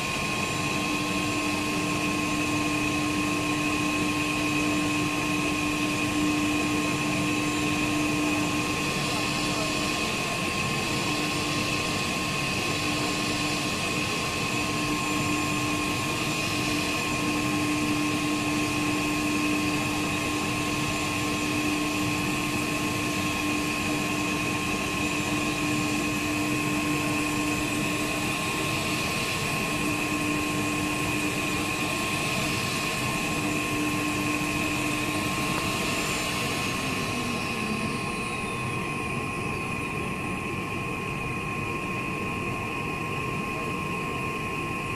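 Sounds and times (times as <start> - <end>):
router spindles whining: 0.0 - 40.4
machining noise routing wood: 12.4 - 38.6.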